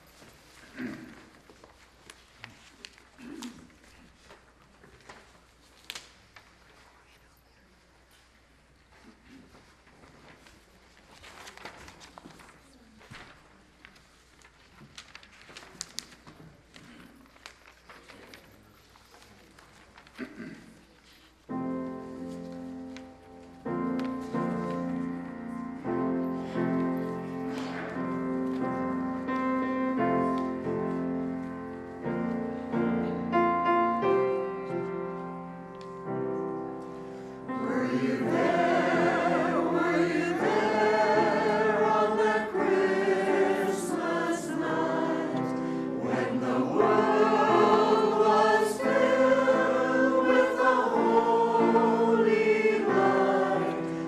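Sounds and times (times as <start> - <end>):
church choir singing: 36.8 - 54.0.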